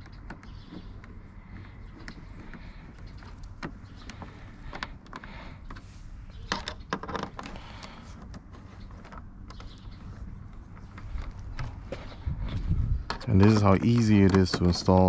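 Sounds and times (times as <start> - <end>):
steady low rumble: 0.0 - 15.0
metal bolts clicking and rattling: 13.0 - 15.0.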